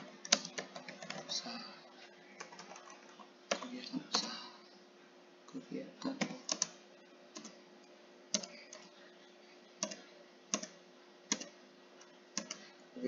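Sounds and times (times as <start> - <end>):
keyboard keys clicking: 0.0 - 1.4, 6.2 - 6.8, 8.3 - 8.9, 9.8 - 12.6.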